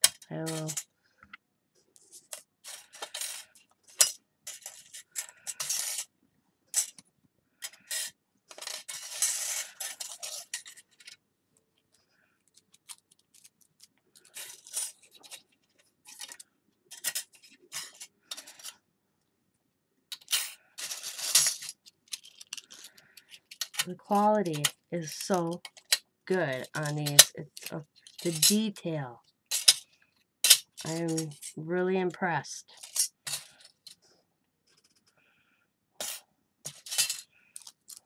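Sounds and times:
metal findings clinking together: 29.5s - 29.8s.

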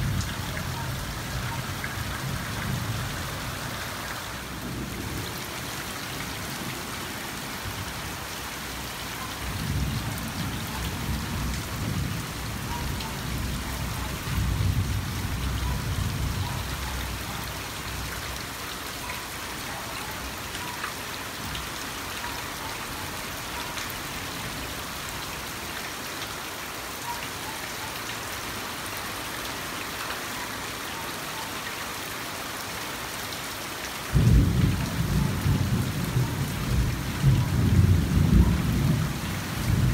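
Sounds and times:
rain on foliage: 0.0s - 39.9s
thunder rumbling: 34.1s - 39.9s.

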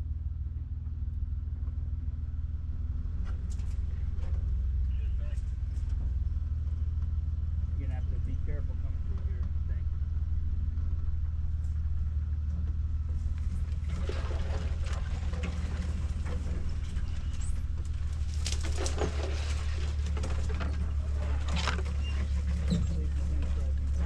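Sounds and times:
truck engine drone: 0.0s - 24.0s
branches scraping truck body: 13.0s - 24.0s.

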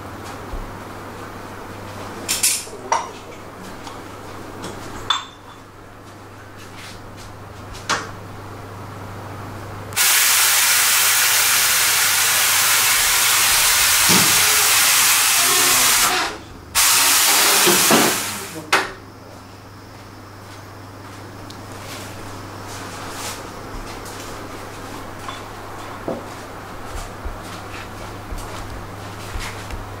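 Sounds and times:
compressed air blow gun hissing: 10.0s - 18.5s.

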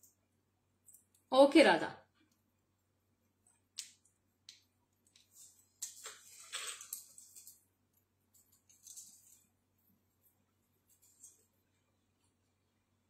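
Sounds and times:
earring clicks and rustles: 5.0s - 7.7s, 8.3s - 9.6s.

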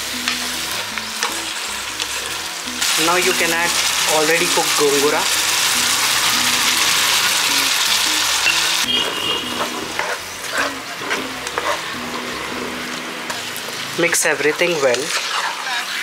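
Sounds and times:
curry sizzling in a pan: 0.0s - 16.0s
spoon stirring and scraping: 8.9s - 13.9s, 14.6s - 16.0s.

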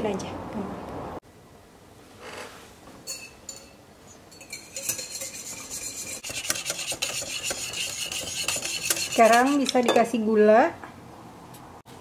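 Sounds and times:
whisk beating in glass bowl: 4.3s - 10.0s.

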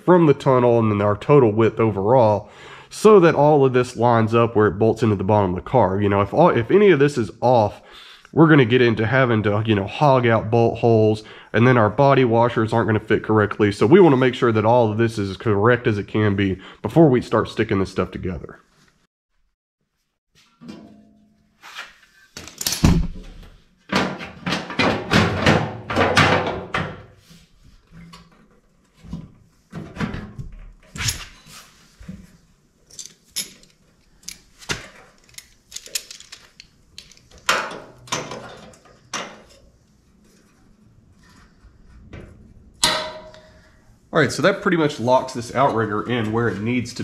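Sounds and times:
sheet metal knocks and rattles: 22.8s - 27.1s.

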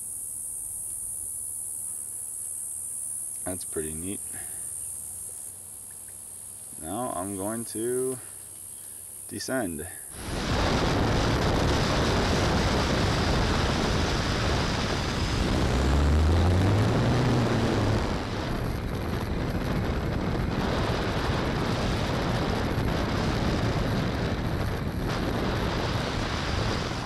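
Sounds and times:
rushing air: 6.7s - 27.0s
low hum: 10.2s - 27.0s.

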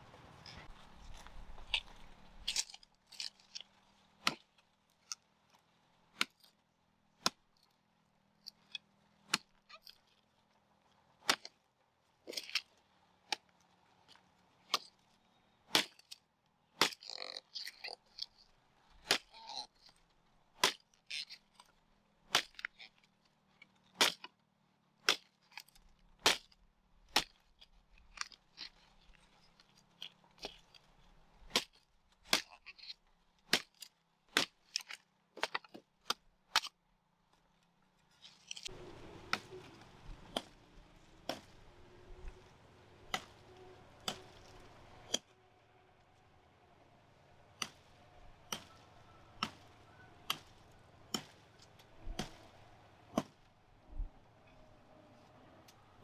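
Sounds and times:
knife chopping sugarcane: 16.8s - 18.0s, 19.0s - 19.6s, 31.5s - 32.6s, 38.6s - 40.6s, 41.2s - 42.4s, 43.1s - 45.3s, 47.6s - 47.9s, 48.5s - 48.8s, 49.4s - 51.4s, 52.0s - 53.4s.

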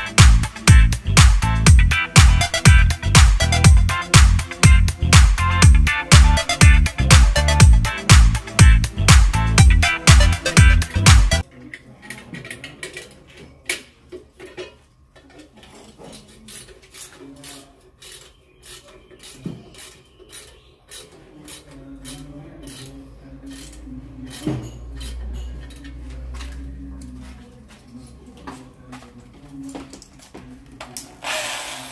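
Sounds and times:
hand tool scraping plaster wall: 15.9s - 25.2s.

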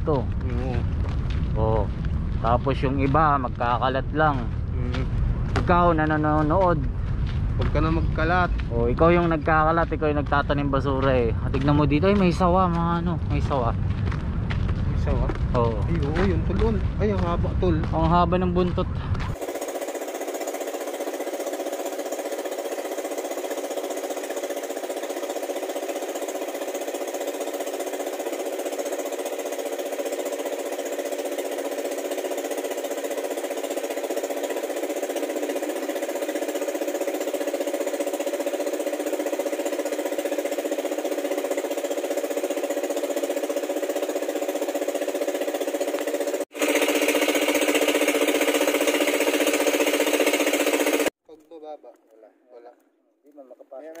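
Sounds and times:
small boat engine running: 0.0s - 51.2s.

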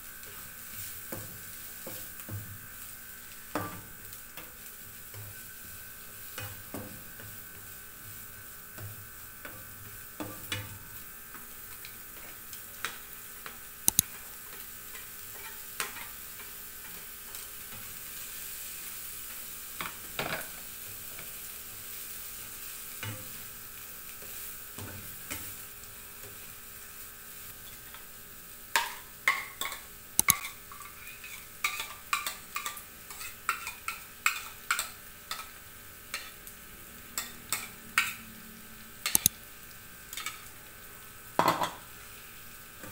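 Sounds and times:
stir-fry sizzling in oil: 0.0s - 42.9s
sharp clicks: 13.9s - 14.1s, 30.2s - 30.4s, 39.1s - 39.4s
spatula knocking and scraping pan: 28.8s - 35.5s.

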